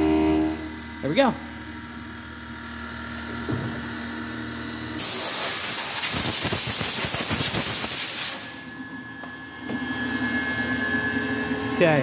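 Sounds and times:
machine low hum: 0.0s - 5.0s, 8.5s - 12.0s
compressed air hissing: 5.0s - 8.6s.

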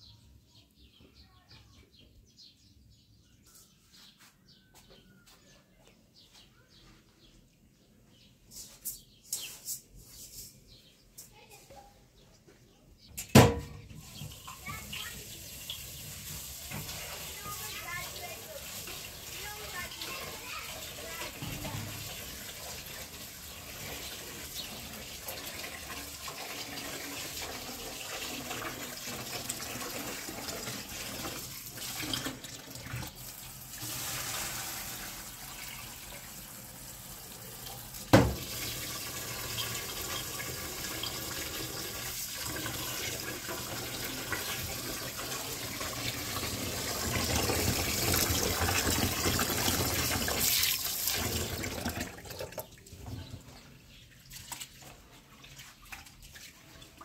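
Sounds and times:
tap water splashing into sink: 13.2s - 36.3s, 37.6s - 52.8s
dishes being washed: 13.4s - 57.0s.

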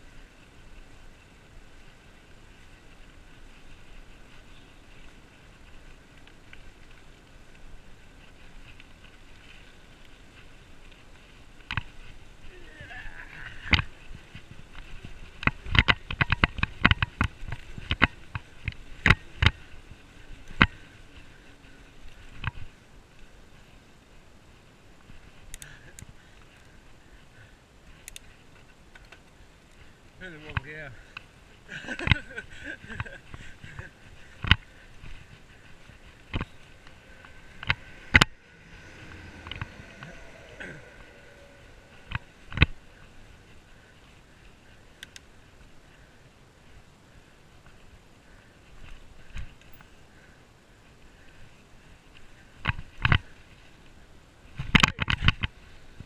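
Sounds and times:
bicycle rattling and clicking: 0.0s - 12.5s, 13.1s - 56.0s
bike knocks and rattles: 14.8s - 19.7s
riding hiss: 18.5s - 54.6s.

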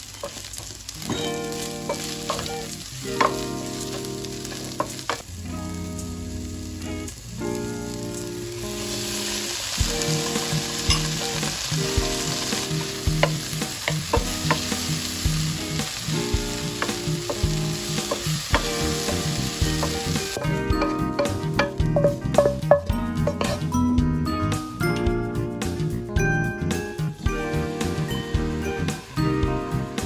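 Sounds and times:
vegetables sizzling in a pan: 0.0s - 23.7s, 27.2s - 30.0s
wooden spatula scraping and tapping: 16.8s - 23.7s.

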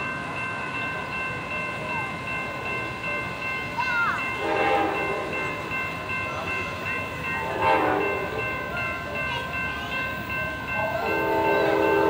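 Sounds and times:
train horn blast: 4.4s - 5.3s, 7.5s - 8.3s, 11.0s - 12.0s.

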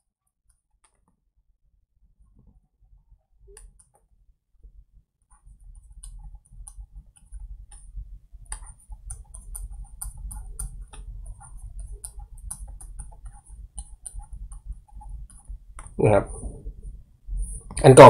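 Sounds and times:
stylus tapping on tablet screen: 5.3s - 16.0s.

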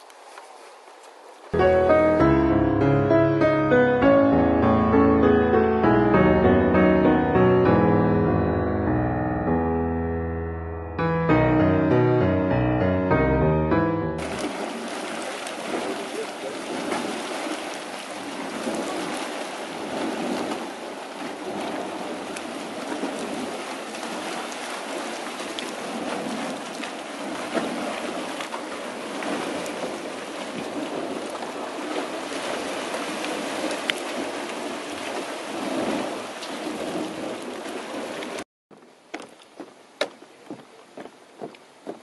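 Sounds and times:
hot spring water surging and splashing: 0.0s - 2.2s, 14.2s - 42.0s.

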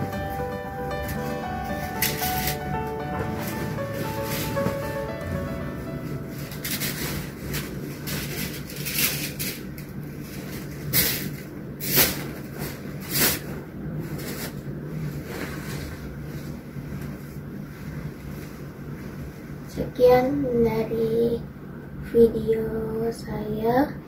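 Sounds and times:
low hum: 0.0s - 9.9s
bedding rustling: 0.0s - 19.7s.

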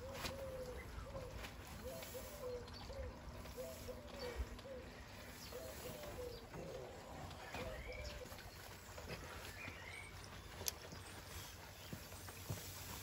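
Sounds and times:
bird cooing: 0.0s - 8.5s.

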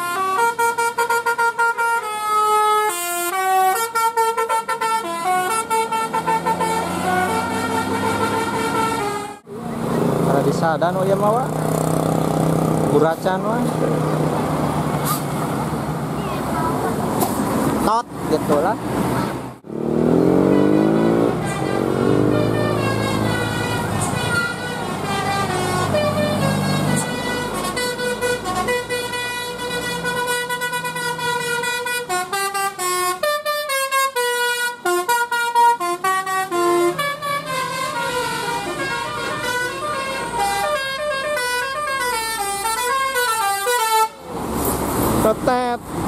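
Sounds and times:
bus musical horn: 0.0s - 9.5s, 20.2s - 44.3s
bus engine: 0.0s - 46.0s.

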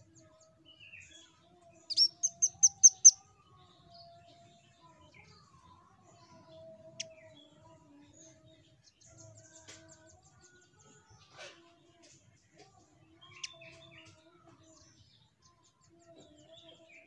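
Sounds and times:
bird chirping faintly: 1.8s - 3.2s
sharp high bird calls: 1.9s - 3.2s.

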